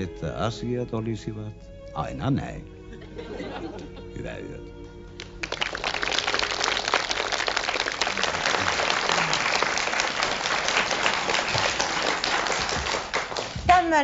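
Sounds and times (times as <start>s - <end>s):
audience applauding: 5.1s - 14.0s.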